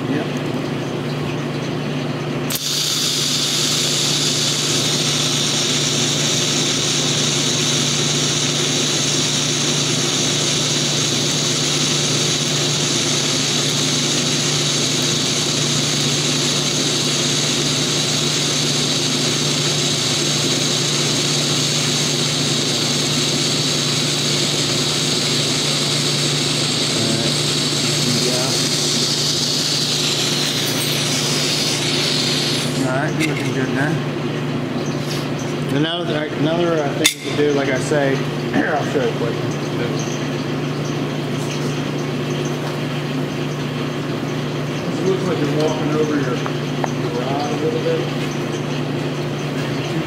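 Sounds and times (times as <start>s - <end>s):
steady low hum: 2.3s - 35.0s
welding arc hissing: 2.5s - 33.6s.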